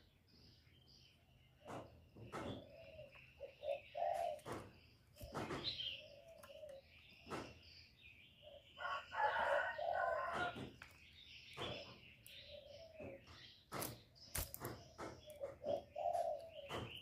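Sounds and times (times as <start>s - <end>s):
dove cooing: 1.6s - 7.3s, 8.4s - 10.6s, 15.0s - 17.0s.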